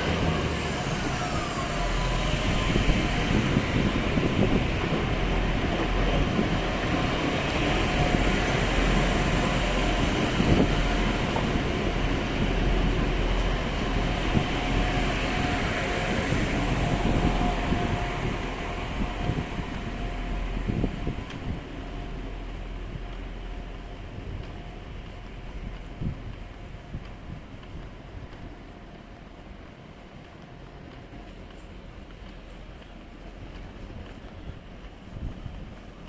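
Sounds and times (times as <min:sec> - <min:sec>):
train rumbling and rolling: 0:00.0 - 0:36.0.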